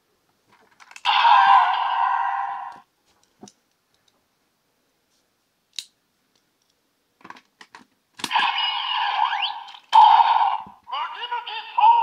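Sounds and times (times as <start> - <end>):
toy sword electronic sound effect: 8.3 - 10.7.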